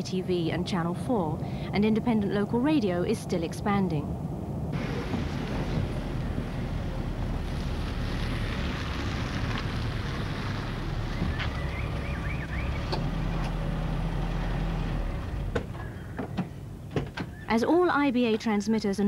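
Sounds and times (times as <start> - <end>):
wind noise on microphone: 0.0 - 11.6.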